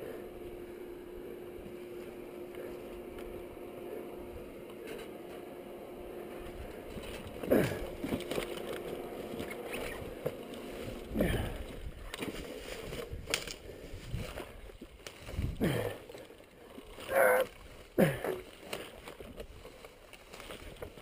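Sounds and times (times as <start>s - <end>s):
mud sloshing: 6.4s - 21.0s
person grunting: 7.4s - 8.0s, 11.1s - 11.7s, 15.6s - 16.1s, 17.1s - 18.5s.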